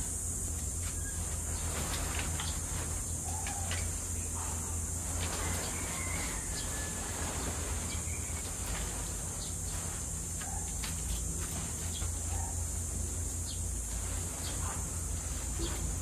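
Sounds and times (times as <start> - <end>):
constant high hiss: 0.0 - 16.0.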